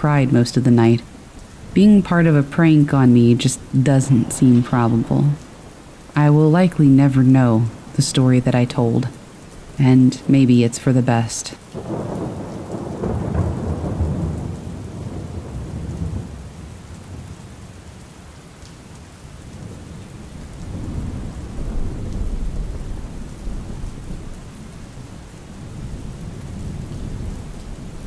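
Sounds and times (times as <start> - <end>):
steady rain: 0.0 - 28.0
rolling thunder: 1.1 - 6.2, 11.8 - 17.4, 19.6 - 28.0.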